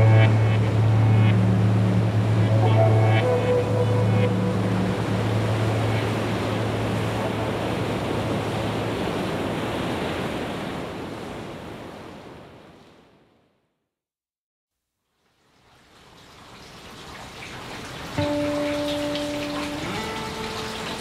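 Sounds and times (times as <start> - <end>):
low steady hum: 0.0 - 9.0
ocean waves washing: 0.0 - 13.2, 17.8 - 21.0.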